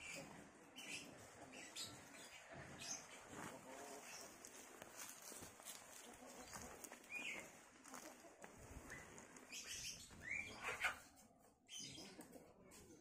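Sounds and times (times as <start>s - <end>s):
rustling and crackling of dry leaves: 0.0s - 10.4s
chicken chirping calls: 0.0s - 13.0s.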